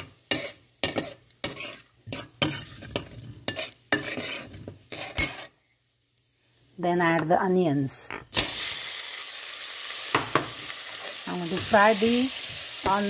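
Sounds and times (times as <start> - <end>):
spices sizzling in oil: 0.0 - 5.5, 8.3 - 13.0
metal spoon scraping a pan: 0.0 - 5.6, 10.9 - 13.0.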